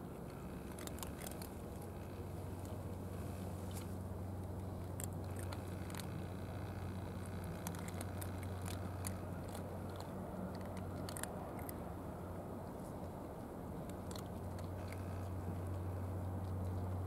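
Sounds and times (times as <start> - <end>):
cat crunching dry kibble: 0.0 - 17.0
steady low hum: 0.0 - 17.0.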